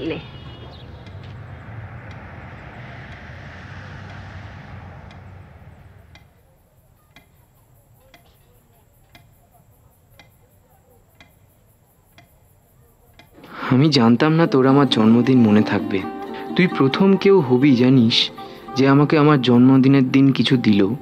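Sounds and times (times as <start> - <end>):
rushing noise with low hum: 0.0 - 6.6
faint high insect chirring: 6.7 - 14.4
clock ticking: 11.2 - 12.4.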